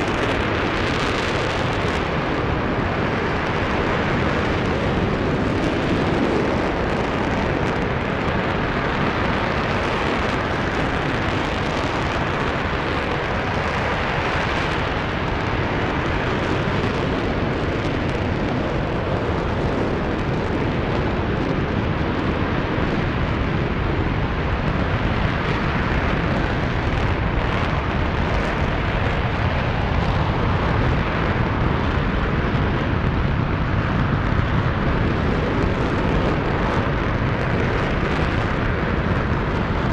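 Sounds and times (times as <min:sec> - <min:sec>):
rocket engine firing: 0:00.0 - 0:39.9.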